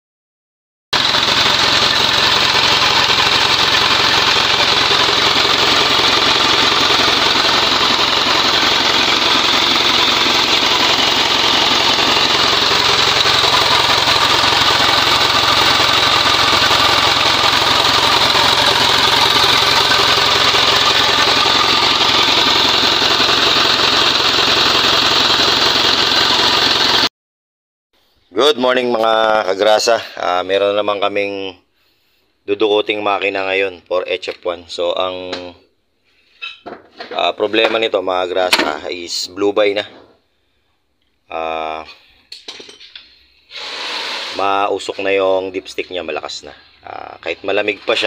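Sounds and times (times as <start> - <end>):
diesel engine idling: 1.0 - 27.1.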